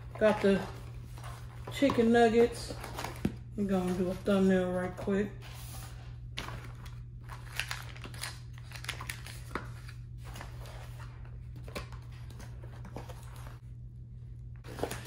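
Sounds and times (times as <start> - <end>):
steady low hum: 0.0 - 15.0
paper packaging crinkling: 6.4 - 13.6.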